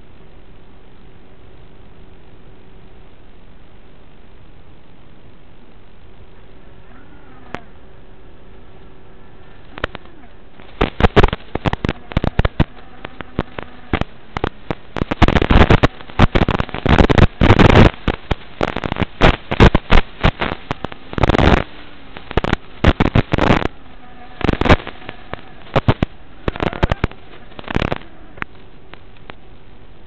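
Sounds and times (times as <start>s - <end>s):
crackling and popping static: 0.0s - 30.0s
steady hiss: 0.0s - 30.0s.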